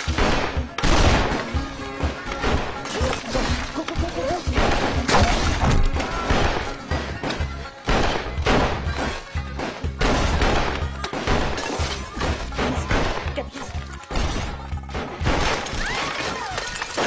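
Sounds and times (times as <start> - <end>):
crashes: 0.0 - 13.5
action film music with heavy bass: 0.0 - 16.0
glass shattering: 0.0 - 17.0.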